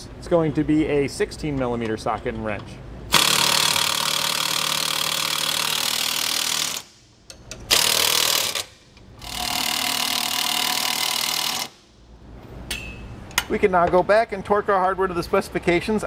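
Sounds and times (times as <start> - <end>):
cordless impact wrench running: 3.1 - 7.0, 7.7 - 11.8.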